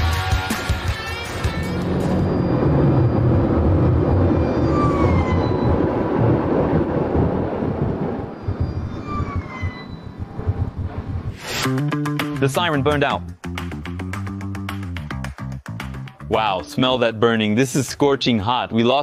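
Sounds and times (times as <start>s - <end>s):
faint siren: 1.4s - 11.2s
wind and road rush: 1.4s - 11.6s.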